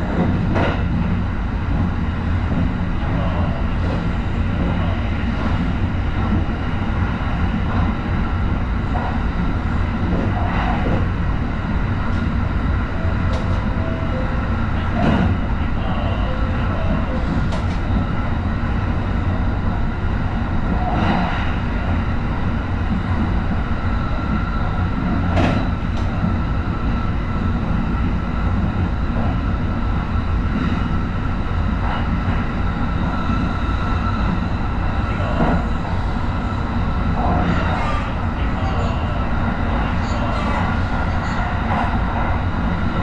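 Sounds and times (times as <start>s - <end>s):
train knocks: 0.0s - 2.8s, 13.0s - 15.5s, 24.7s - 26.4s
train rumbling: 0.0s - 43.0s.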